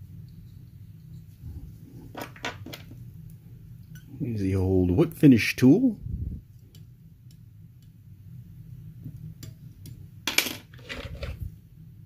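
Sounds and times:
low hum: 0:00.0 - 0:02.2, 0:05.9 - 0:10.3.

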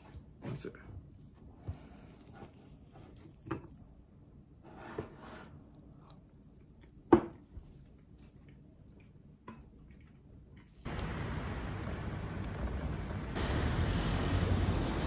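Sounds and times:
outdoor street noise: 0:10.9 - 0:15.0.

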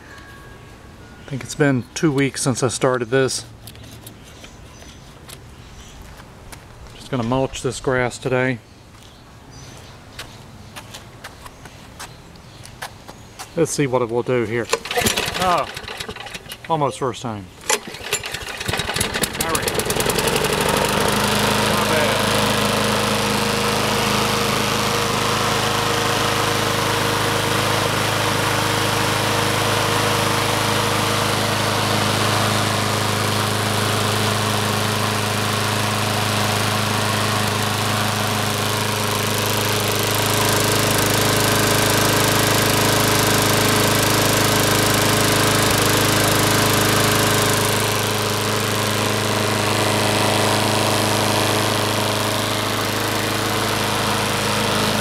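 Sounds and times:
lawn mower engine running: 0:14.3 - 0:55.0.

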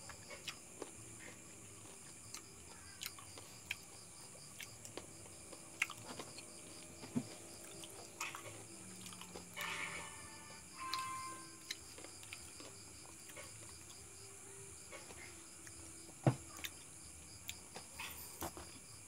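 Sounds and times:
person chewing and sucking: 0:00.1 - 0:06.8.

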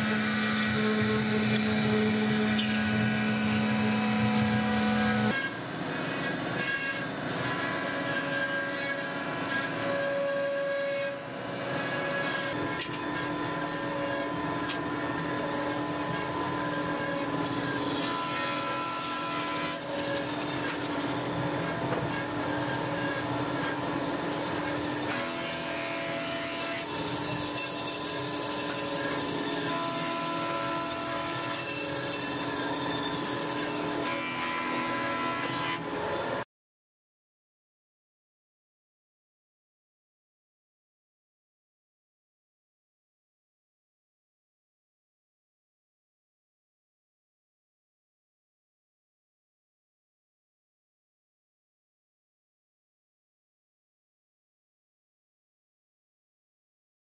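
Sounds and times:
band saw cutting wood: 0:00.0 - 0:36.4
woodworking machinery humming: 0:00.0 - 0:36.4.

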